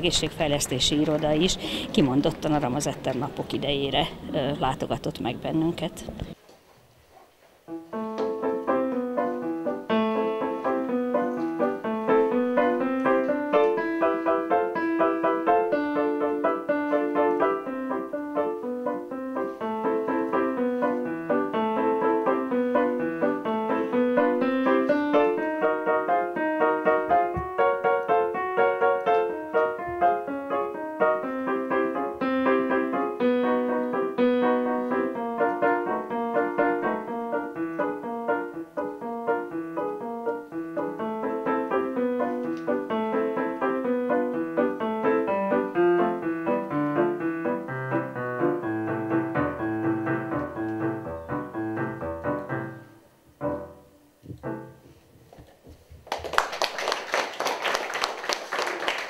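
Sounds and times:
solo piano piece: 7.6 - 55.3
applause: 56.0 - 59.0.

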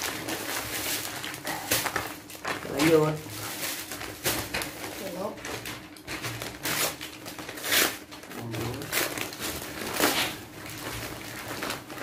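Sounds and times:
wrapping paper rustling: 0.0 - 12.0.

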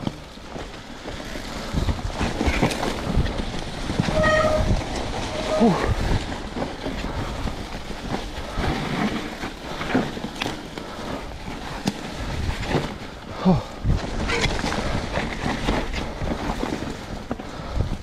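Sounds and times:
bike tyres rolling through leaves and mud: 0.0 - 18.0
wind on microphone: 1.6 - 7.7.

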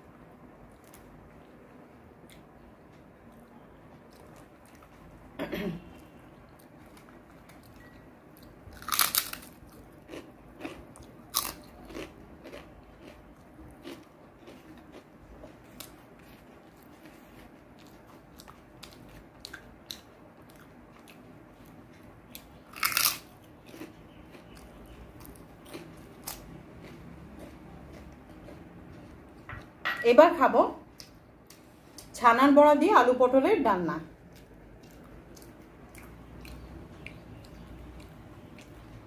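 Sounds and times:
chewing and mouth smacks: 6.5 - 29.7, 34.2 - 39.0
loud crunchy bites: 8.7 - 13.2, 13.8 - 15.0, 22.7 - 28.1.

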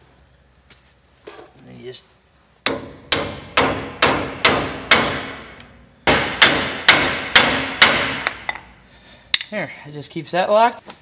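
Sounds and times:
hammer striking metal: 2.6 - 9.5.

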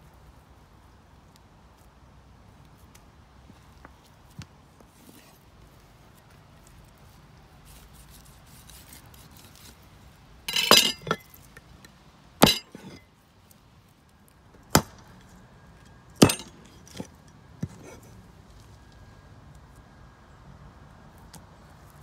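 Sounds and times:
hard objects knocking and clinking: 10.5 - 11.4, 12.4 - 13.0.

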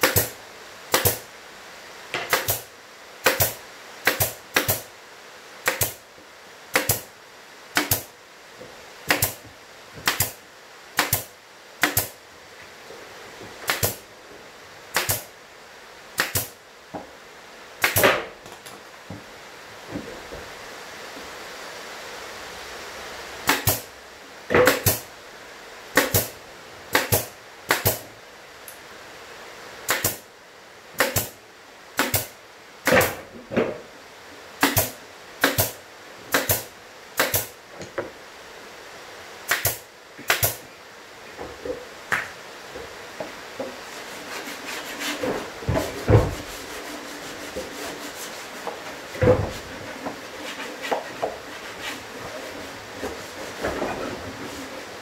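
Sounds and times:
nail gun shots: 0.0 - 1.2, 2.3 - 4.9, 5.6 - 6.0, 6.7 - 7.1, 7.8 - 8.1, 9.1 - 9.4, 10.0 - 10.4, 11.0 - 12.2, 13.7 - 14.0, 14.9 - 15.3, 16.2 - 16.6, 17.8 - 18.3, 23.4 - 23.9, 24.6 - 25.0, 26.0 - 26.3, 26.9 - 28.0, 29.9 - 30.2, 31.0 - 31.4, 32.0 - 33.2, 34.6 - 37.6, 39.5 - 40.6.

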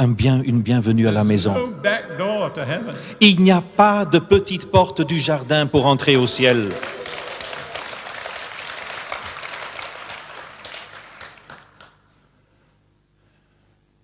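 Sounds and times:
faint steady hum: 0.0 - 14.0
audience applauding: 6.0 - 12.1.

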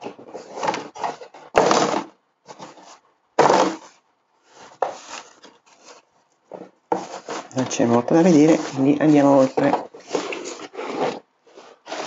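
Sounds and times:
tissue paper rustling: 4.4 - 6.1, 7.0 - 12.0.

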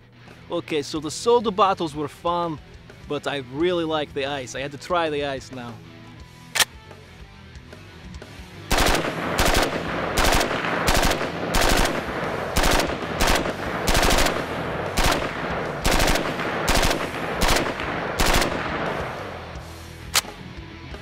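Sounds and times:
gunshot echo: 8.7 - 20.4
rifle shots: 8.7 - 20.4.

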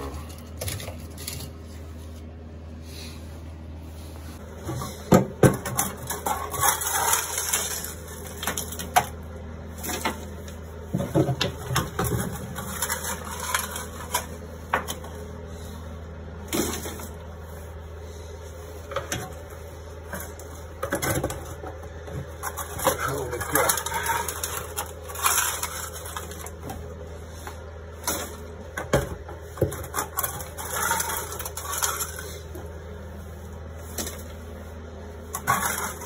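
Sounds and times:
steady low hum: 0.0 - 36.0
scraping rusted iron plate: 5.6 - 8.9, 12.0 - 14.4, 22.4 - 26.6, 29.6 - 32.5.

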